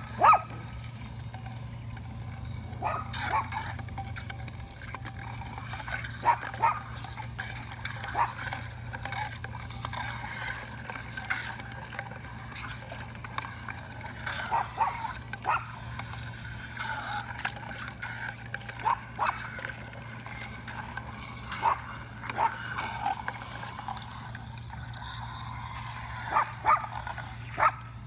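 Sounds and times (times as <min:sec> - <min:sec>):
steady low hum: 0:00.0 - 0:28.0
water sloshing and splashing: 0:00.0 - 0:28.0.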